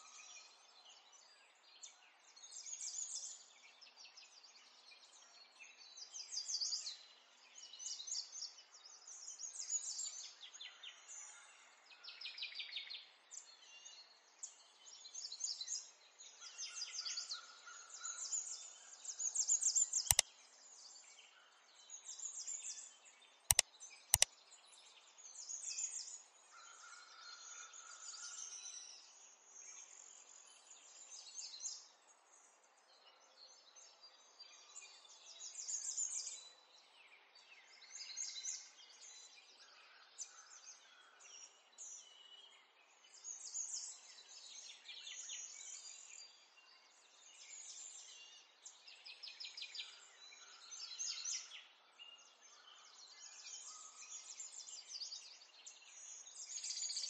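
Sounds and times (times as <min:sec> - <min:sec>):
sharp single clicks: 0:23.5 - 0:24.3.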